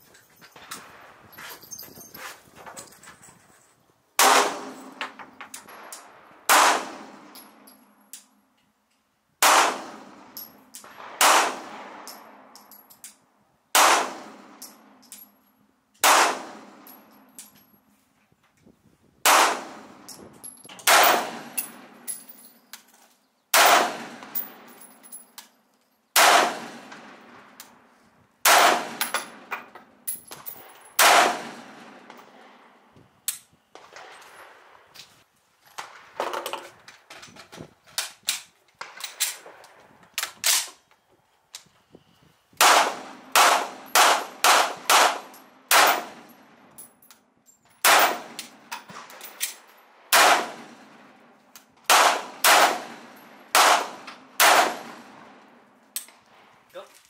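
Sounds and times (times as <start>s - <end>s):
rifle gunshots: 4.2s - 5.0s, 6.5s - 7.3s, 9.4s - 10.2s, 10.9s - 12.1s, 13.8s - 14.5s, 16.0s - 16.8s, 19.2s - 20.0s, 20.8s - 22.0s, 23.5s - 24.4s, 26.2s - 27.3s, 28.4s - 29.5s, 31.0s - 32.1s, 42.6s - 46.3s, 47.8s - 49.2s, 50.1s - 51.2s, 51.8s - 55.3s
faint gunshots: 6.5s - 7.1s, 23.6s - 24.4s, 26.2s - 27.3s, 31.0s - 32.2s, 50.1s - 50.8s, 51.9s - 55.2s.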